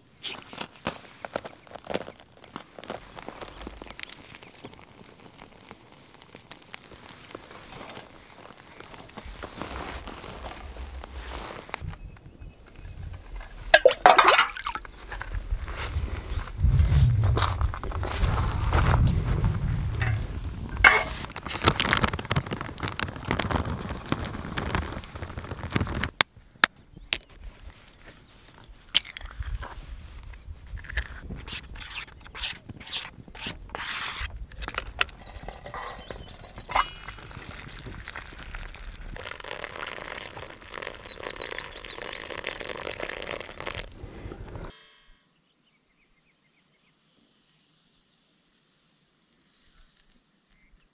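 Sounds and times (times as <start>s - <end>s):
fire crackling: 2.3s - 12.0s, 14.6s - 26.2s, 33.1s - 44.7s
rumbling: 13.2s - 26.1s
metal pots clinking: 13.8s - 14.8s.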